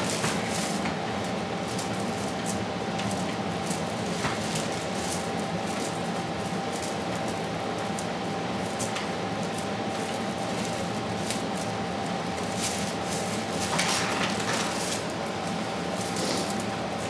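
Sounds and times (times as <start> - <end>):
room hum: 0.0 - 17.0
dry straws rustling: 8.6 - 15.3.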